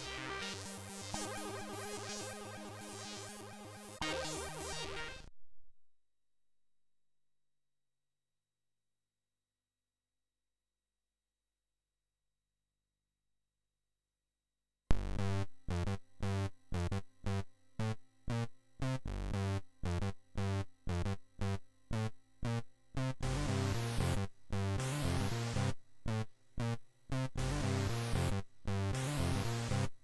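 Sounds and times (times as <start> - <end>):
chiptune music: 4.0 - 5.3.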